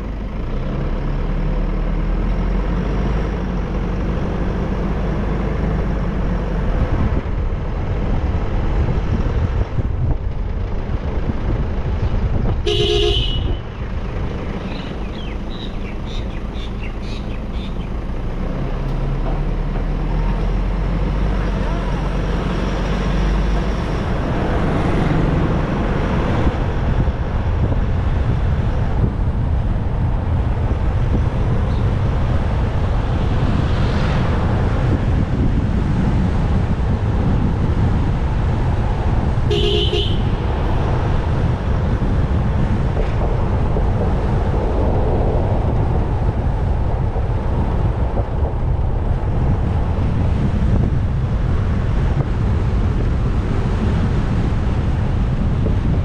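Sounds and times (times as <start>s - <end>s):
motorcycle road noise: 0.0s - 56.0s
wind buffeting microphone: 1.5s - 56.0s
short horn toot: 12.7s - 13.6s, 39.5s - 40.3s.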